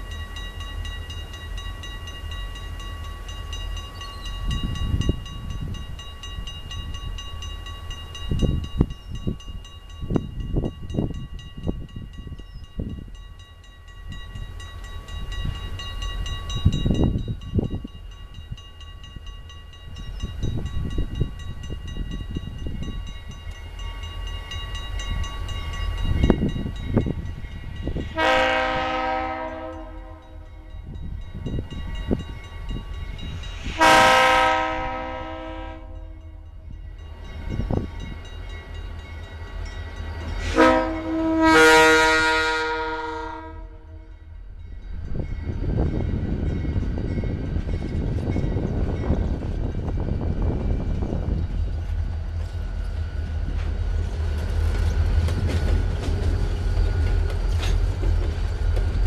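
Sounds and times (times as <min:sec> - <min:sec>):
crossing warning bell ringing: 0:00.0 - 0:59.0
locomotive air horn: 0:28.1 - 0:30.6, 0:33.8 - 0:36.4, 0:40.5 - 0:44.1.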